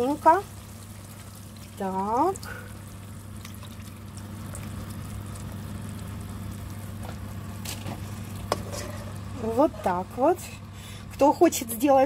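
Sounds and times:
steady low hum: 0:00.0 - 0:12.0
liquid pouring into a pan: 0:00.6 - 0:09.2.

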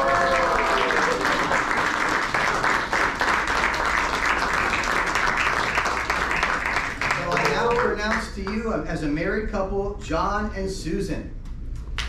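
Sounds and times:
small audience clapping: 0:00.0 - 0:08.6.

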